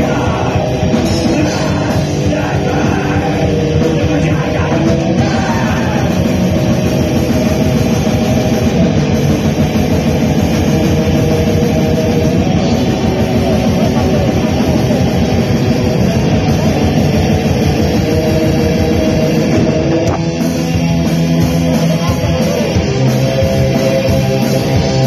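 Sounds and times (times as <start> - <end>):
black metal band playing: 0.0 - 25.0.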